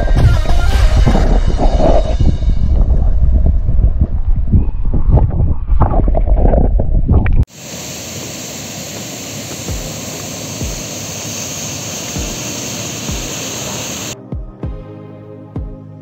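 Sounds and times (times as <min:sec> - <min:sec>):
soft low thumps: 0:00.0 - 0:07.4.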